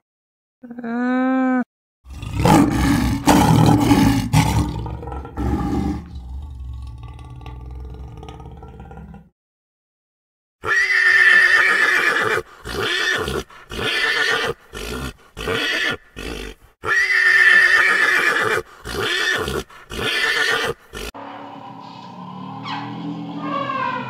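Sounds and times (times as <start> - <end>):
pony whinnying: 10.6 - 21.1, 23.4 - 24.0.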